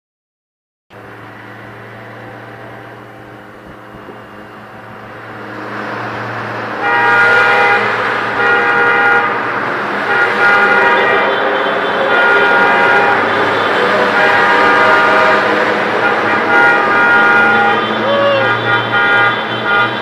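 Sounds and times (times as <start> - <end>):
motorcycle engine: 0.9 - 20.0
multi-tone horn honking: 6.7 - 20.0.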